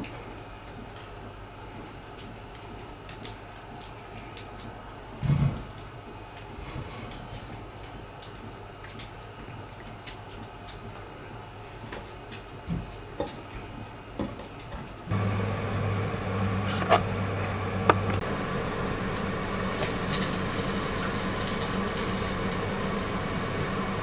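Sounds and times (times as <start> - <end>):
kitchen hum and hiss: 0.0 - 24.0
food sizzling in hot oil: 15.1 - 24.0.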